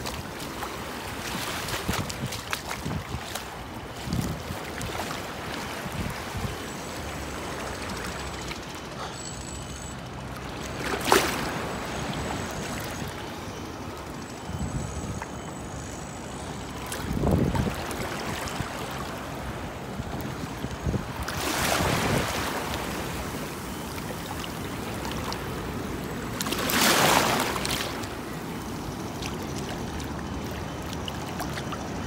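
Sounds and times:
small waves lapping: 0.0 - 14.5, 15.2 - 32.0
wind gusts on microphone: 0.9 - 6.8, 17.0 - 18.8, 20.3 - 23.6.

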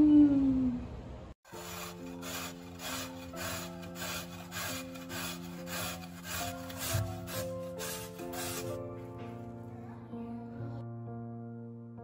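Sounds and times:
potato grating on metal grater: 1.5 - 9.0.

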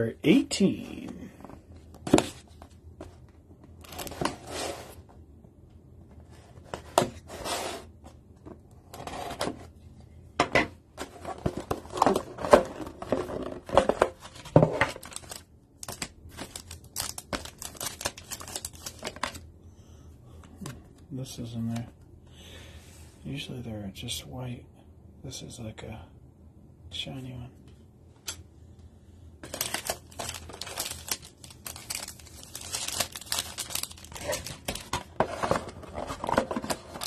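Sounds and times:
foil packs rustling: 14.3 - 19.4, 29.4 - 37.0
plastic shrink wrap tearing: 15.0 - 19.3, 29.4 - 35.0.

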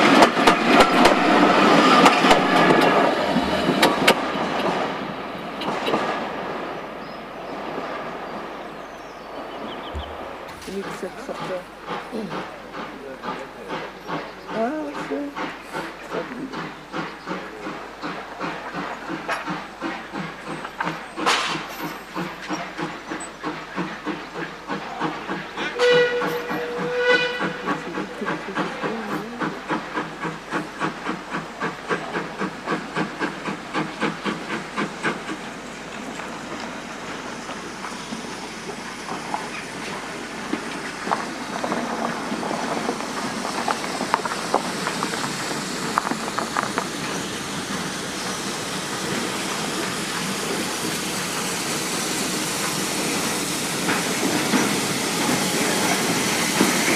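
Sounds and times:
steam hissing: 0.0 - 56.9
steam locomotive exhaust beats: 0.0 - 56.9
steam locomotive whistle: 25.6 - 28.0.

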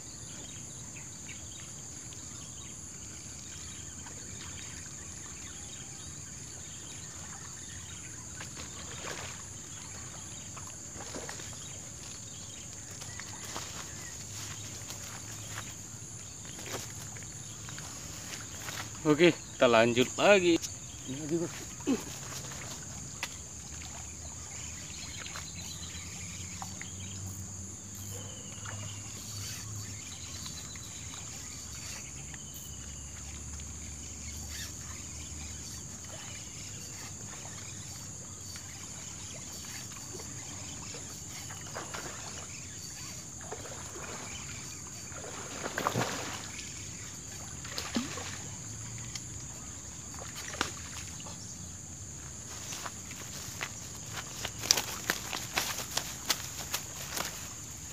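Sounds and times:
high-pitched insect drone: 24.7 - 57.9.

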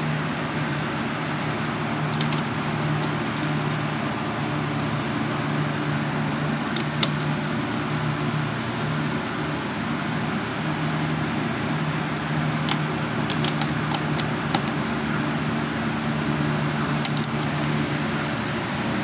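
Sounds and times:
steady mechanical hum: 0.0 - 19.0
metallic clicks of hand tools: 2.1 - 3.2, 12.6 - 14.8, 17.0 - 17.6.

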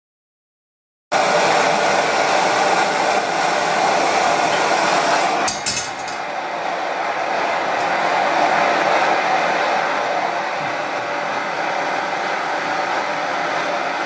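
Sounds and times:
camping stove burner roaring: 1.2 - 14.0
wok clinking on burner: 5.4 - 6.4.

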